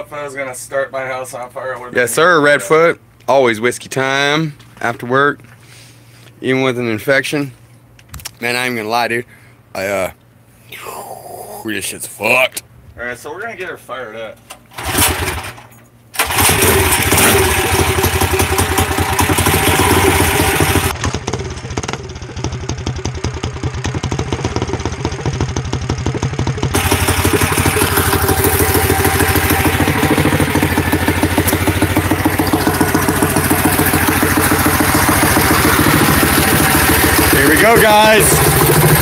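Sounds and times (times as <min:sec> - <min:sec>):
mini bike engine pull-started: 0:14.7 - 0:23.2, 0:23.9 - 0:30.3, 0:31.0 - 0:39.0.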